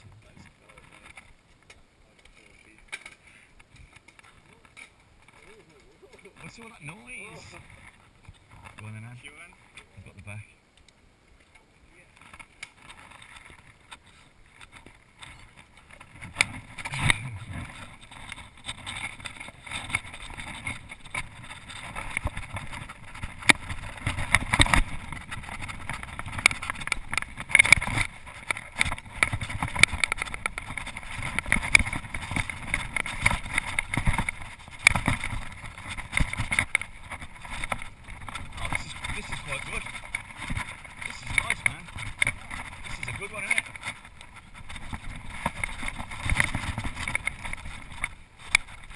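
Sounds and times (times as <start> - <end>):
bike tyres on dirt: 11.3 - 48.9
bike rattling over bumps: 12.1 - 48.9.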